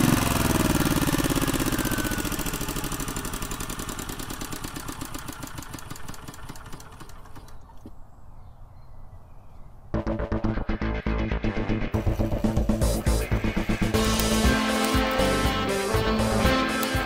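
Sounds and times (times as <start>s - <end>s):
small generator engine running: 0.0s - 7.8s, 12.0s - 17.0s.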